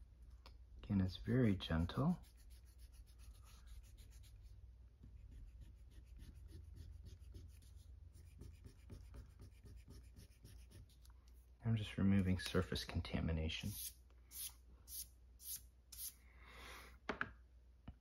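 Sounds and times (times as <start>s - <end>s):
eraser rubbing on paper: 1.6s - 4.6s, 5.2s - 11.0s.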